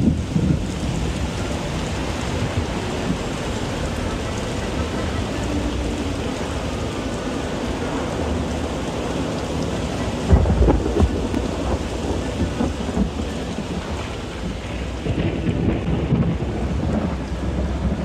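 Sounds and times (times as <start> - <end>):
steady rain hiss: 0.0 - 18.0
thunder rumbling: 0.0 - 18.0
thunder crack: 10.2 - 18.0.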